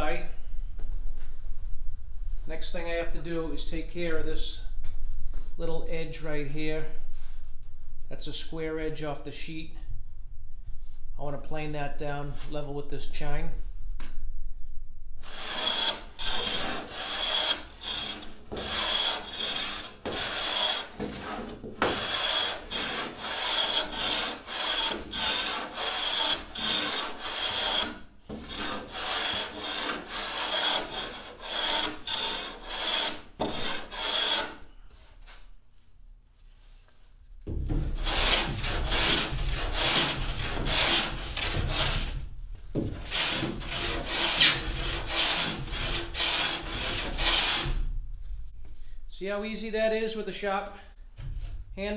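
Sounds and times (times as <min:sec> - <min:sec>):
hand plane shaving wood: 0:15.3 - 0:34.6, 0:38.0 - 0:42.2, 0:43.0 - 0:47.7.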